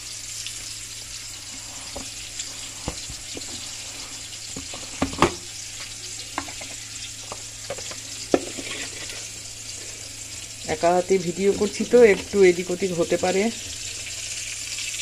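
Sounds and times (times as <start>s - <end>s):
oil sizzling while deep-frying: 0.0s - 15.0s
kitchen utensils knocking: 6.4s - 9.0s.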